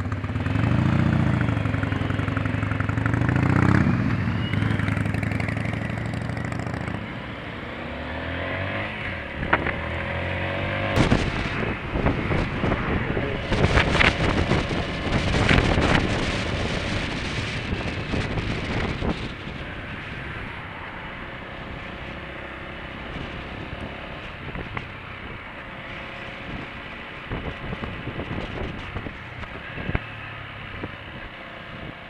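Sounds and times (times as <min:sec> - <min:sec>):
motorcycle engine revving: 0:00.0 - 0:20.4
wind buffeting microphone: 0:09.0 - 0:20.9, 0:26.2 - 0:32.0.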